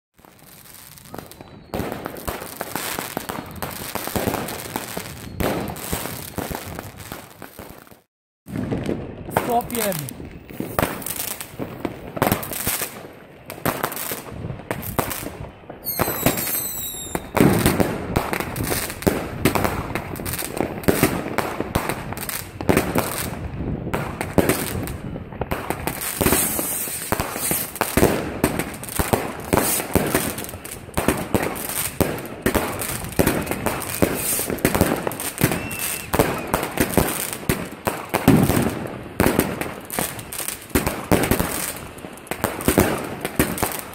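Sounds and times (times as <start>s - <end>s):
firework whistle: 0.5s - 6.2s, 15.8s - 17.8s, 26.2s - 27.8s, 29.5s - 30.2s, 33.0s - 37.2s
firework battery shots bursting: 14.8s - 23.2s, 24.0s - 41.8s.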